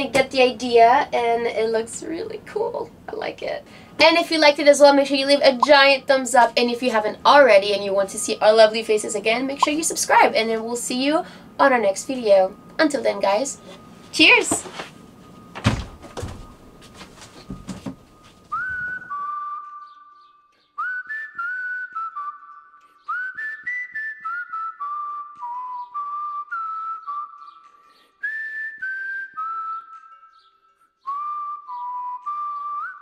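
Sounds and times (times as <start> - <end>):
rustling: 13.8 - 19.1
knocks: 15.6 - 16.5
person whistling a melody: 18.5 - 33.0.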